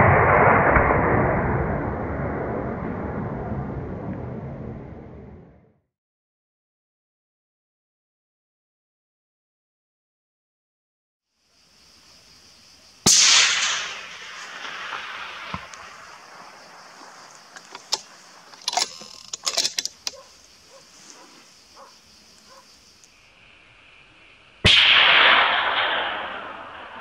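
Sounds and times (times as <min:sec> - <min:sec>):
rifle shots echoing: 0:13.1 - 0:18.6, 0:24.6 - 0:27.0
rifle action clicks and knocks: 0:17.5 - 0:20.3.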